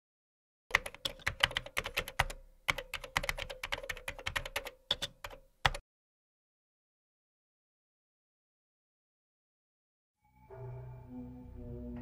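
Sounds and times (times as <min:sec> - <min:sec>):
keyboard key clicks: 0:00.7 - 0:05.8.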